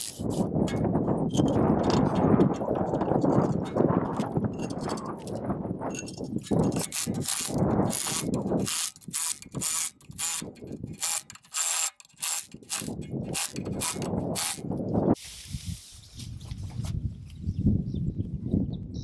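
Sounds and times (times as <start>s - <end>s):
impact driver rattling bursts: 6.0s - 14.7s.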